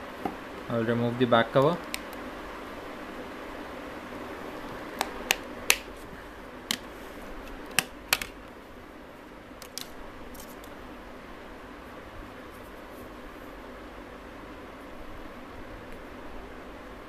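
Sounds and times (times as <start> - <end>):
plastic clips clicking: 7.5 - 8.4.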